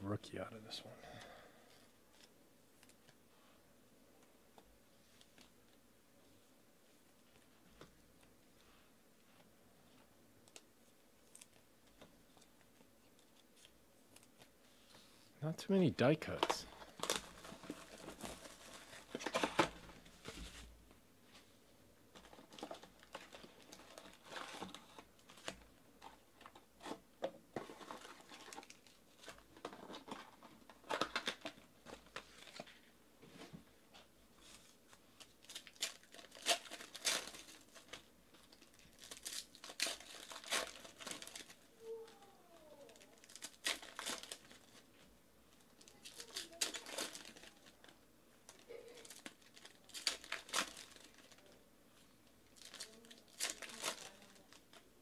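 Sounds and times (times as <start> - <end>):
plastic wrappers crinkling and tearing: 16.2 - 20.6, 22.1 - 27.0, 27.6 - 32.8, 34.4 - 54.9.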